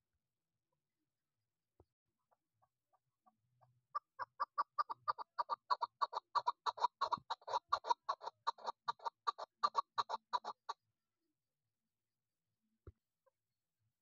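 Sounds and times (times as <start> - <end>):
partridge calling: 2.3 - 10.8.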